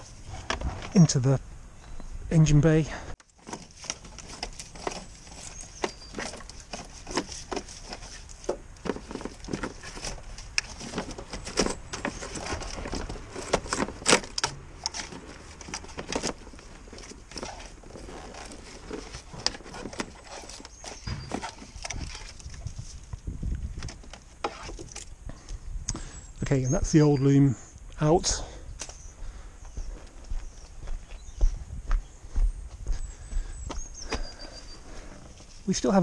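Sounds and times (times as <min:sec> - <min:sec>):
cables and trim rustling and clicking: 0:03.2 - 0:26.0.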